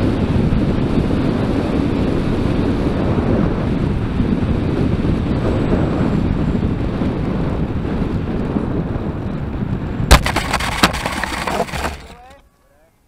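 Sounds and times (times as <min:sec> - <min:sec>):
wind rushing over microphone: 0:00.0 - 0:12.2.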